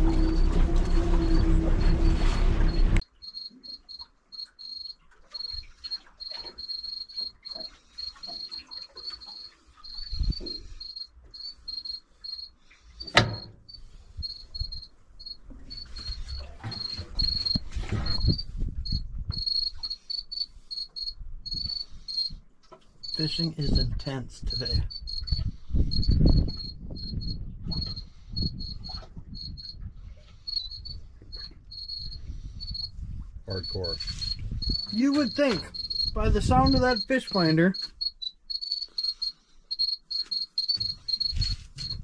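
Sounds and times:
boat motor running: 0.0 - 3.0
fish finder alarm chirping: 0.0 - 22.4, 23.0 - 42.0.

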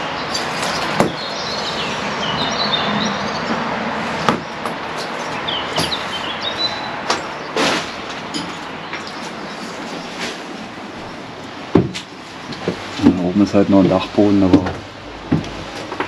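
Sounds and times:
birds chirping: 0.0 - 16.0
outdoor noise: 0.0 - 16.0
sharp knocks and clicks: 4.3 - 6.0, 13.9 - 16.0.

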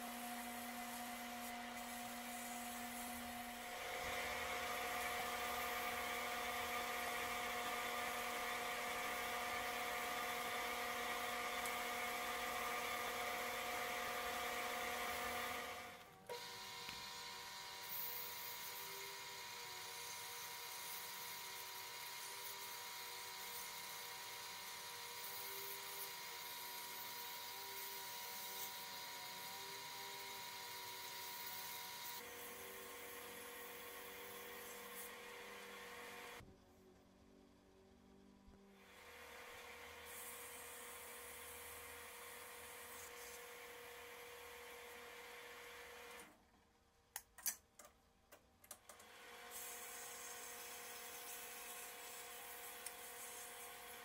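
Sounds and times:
power tool motor whining: 0.0 - 36.4.

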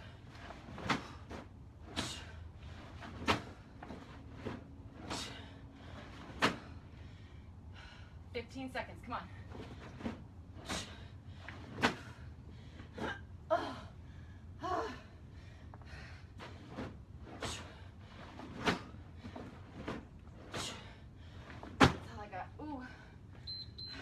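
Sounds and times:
woman breathing hard: 5.1 - 8.3, 10.6 - 16.6.

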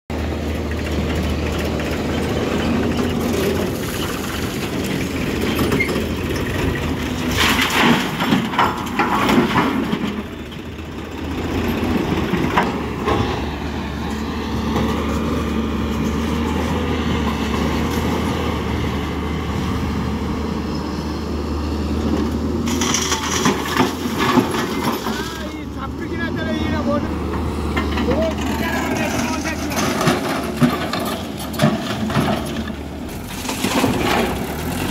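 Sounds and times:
diesel engines running: 0.1 - 34.9
knocks and clatters: 0.6 - 13.6, 22.2 - 25.6, 27.3 - 34.9
earth and rocks rattling down: 1.3 - 13.5, 22.6 - 25.6, 27.8 - 34.9.

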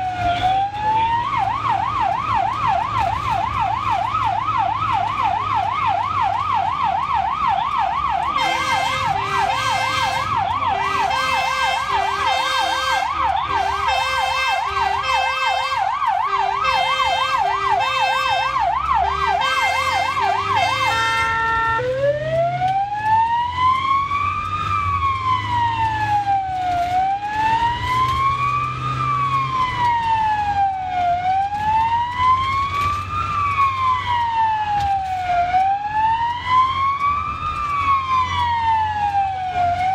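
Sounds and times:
engine and road noise: 0.0 - 39.9
siren slow wail: 0.0 - 39.9
siren yelp: 0.0 - 39.9
two-note siren: 7.4 - 22.9.

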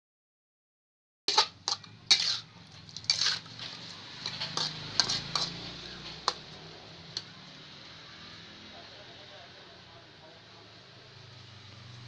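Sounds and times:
spatula scraping metal wok: 1.3 - 7.3.

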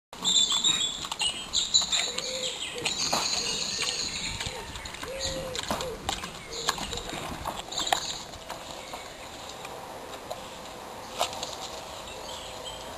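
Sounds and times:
small birds chirping: 0.2 - 9.8.

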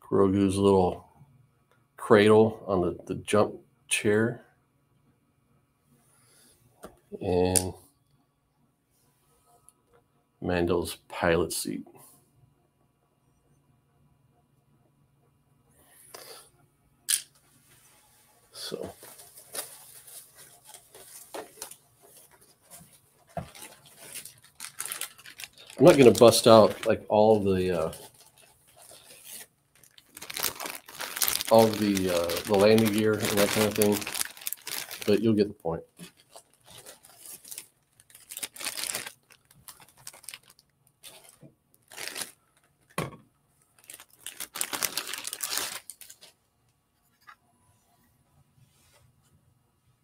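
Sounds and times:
packaging crinkling: 18.6 - 43.0, 43.6 - 46.4.

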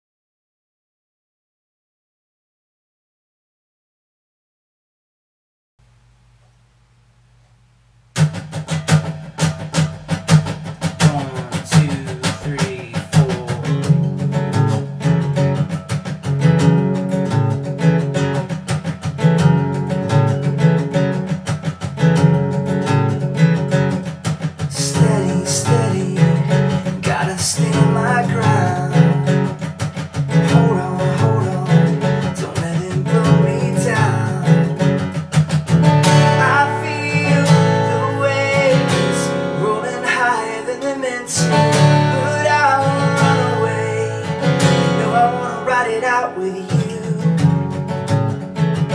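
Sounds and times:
acoustic guitar strumming: 8.1 - 48.9
man singing: 10.9 - 14.4, 24.6 - 35.0, 36.0 - 47.8.

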